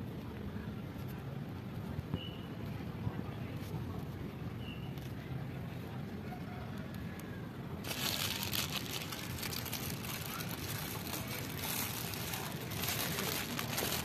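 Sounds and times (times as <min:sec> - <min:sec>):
plastic bag crinkling: 0:07.8 - 0:14.0.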